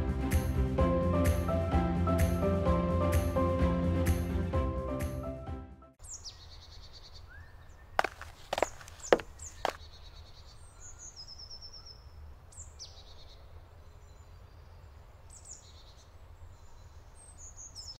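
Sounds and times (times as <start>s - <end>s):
birds trilling and chirping: 6.0s - 13.4s.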